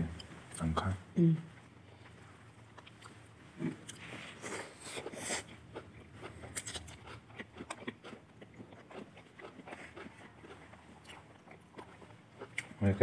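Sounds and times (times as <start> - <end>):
chewing and slurping noodles: 2.8 - 12.7.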